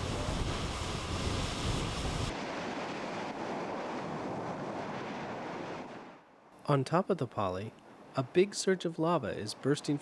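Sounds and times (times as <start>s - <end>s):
ocean surf rumbling: 0.0s - 6.5s.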